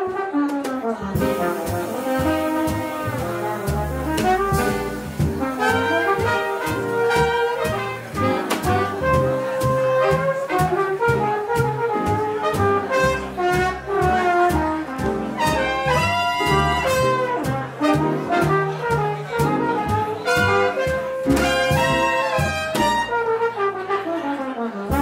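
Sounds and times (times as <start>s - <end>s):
saxophone: 0.0s - 14.8s
trombone: 0.0s - 25.0s
trumpet: 0.0s - 25.0s
drums keeping a steady beat: 0.1s - 23.5s.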